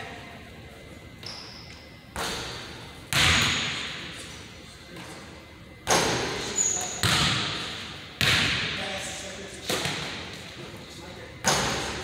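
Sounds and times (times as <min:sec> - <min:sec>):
basketball hitting hoop: 0:03.1 - 0:03.9, 0:07.0 - 0:07.6, 0:08.2 - 0:08.7.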